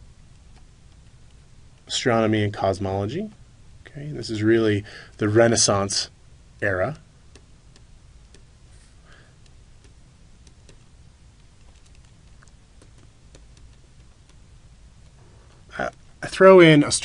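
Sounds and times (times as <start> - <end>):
background hiss: 0.0 - 17.0
stylus tapping on tablet screen: 7.3 - 8.5, 9.4 - 14.4.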